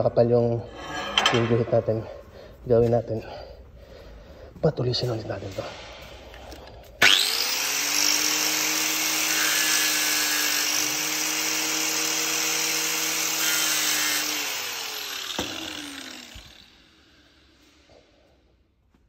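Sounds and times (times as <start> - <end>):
electric grinder whining: 7.0 - 17.7.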